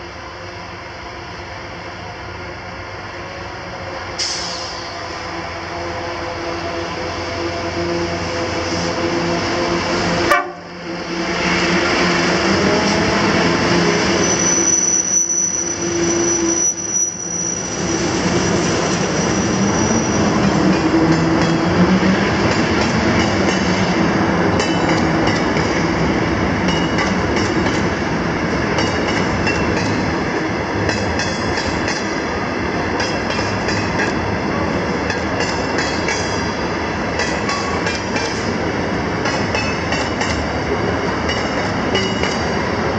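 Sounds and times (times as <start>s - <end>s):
diesel locomotive engine drone: 0.0s - 42.9s
high wheel squeal: 13.8s - 20.6s.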